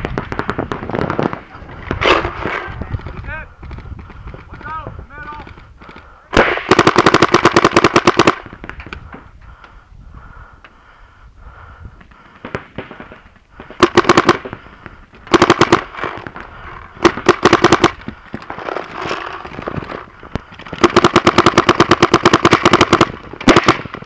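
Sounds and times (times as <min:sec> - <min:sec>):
paintball marker firing rapidly: 0:01.9 - 0:08.9, 0:12.2 - 0:16.4, 0:17.0 - 0:24.0
distant paintball shots popping: 0:12.0 - 0:24.0.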